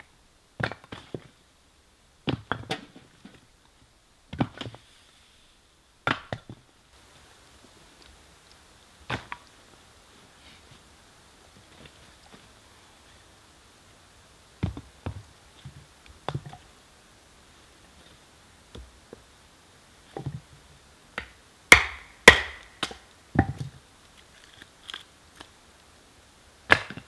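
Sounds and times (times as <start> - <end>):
axe striking wood: 6.0 - 6.4, 21.2 - 23.6, 26.7 - 27.0.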